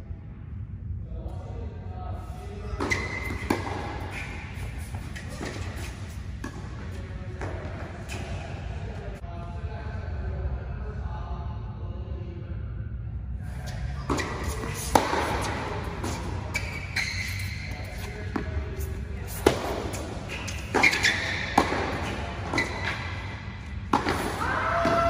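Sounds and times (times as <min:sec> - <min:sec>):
rackets hitting tennis balls: 0:02.6 - 0:08.8, 0:13.7 - 0:25.0
tennis balls bouncing on court: 0:02.8 - 0:08.4, 0:14.1 - 0:25.0.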